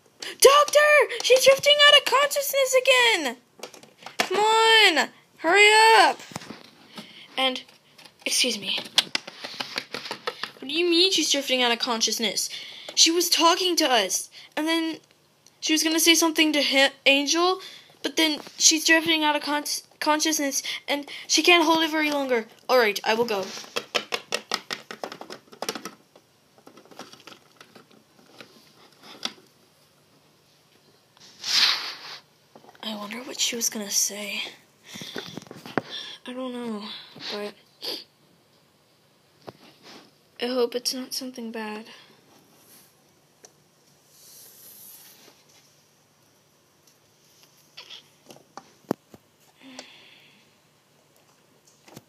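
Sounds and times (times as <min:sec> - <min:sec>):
plastic toy figures handled: 0:03.6 - 0:04.4, 0:06.2 - 0:10.6, 0:23.1 - 0:29.5
plastic figurines tapping on plastic: 0:08.0 - 0:10.6, 0:23.7 - 0:26.0.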